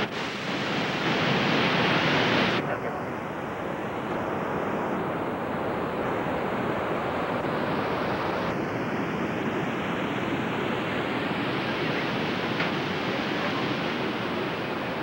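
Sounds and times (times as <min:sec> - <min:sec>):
rushing water roar: 0:00.0 - 0:15.0.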